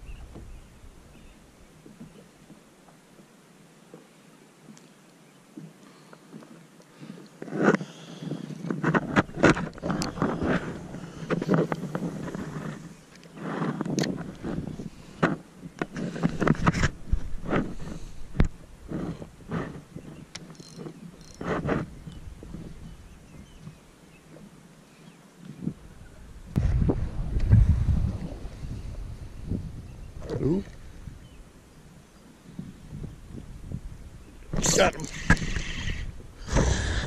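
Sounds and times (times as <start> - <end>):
wind and water hiss: 0.0 - 37.0
soft ticks and rustles: 1.8 - 24.6
wind buffeting microphone: 13.9 - 15.2, 21.2 - 23.8, 25.6 - 37.0.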